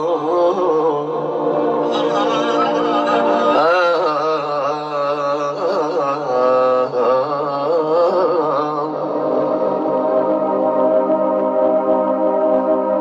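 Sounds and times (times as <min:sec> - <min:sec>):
man singing into a microphone: 0:00.0 - 0:09.2.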